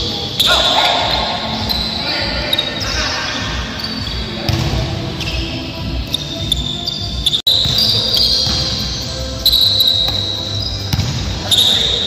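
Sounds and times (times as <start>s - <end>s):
sneakers squeaking on court: 0.0s - 12.0s
basketball bouncing: 4.0s - 5.5s, 6.1s - 12.0s.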